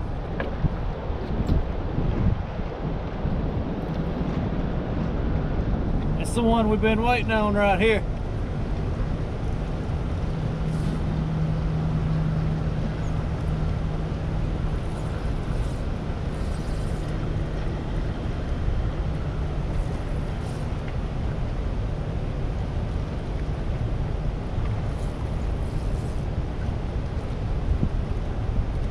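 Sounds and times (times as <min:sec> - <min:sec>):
low steady hum: 0:00.0 - 0:28.9
water rushing below a dam: 0:00.0 - 0:28.9.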